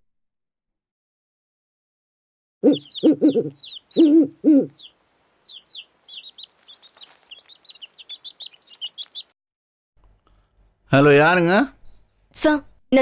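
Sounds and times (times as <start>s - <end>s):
chickens clucking: 2.6s - 9.3s
small birds chirping: 2.6s - 9.4s.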